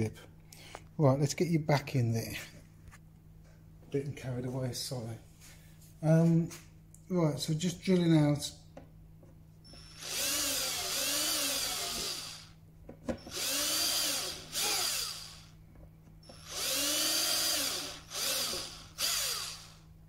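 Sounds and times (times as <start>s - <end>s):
cordless drill whine: 9.7s - 12.6s, 13.2s - 15.6s, 16.2s - 19.9s.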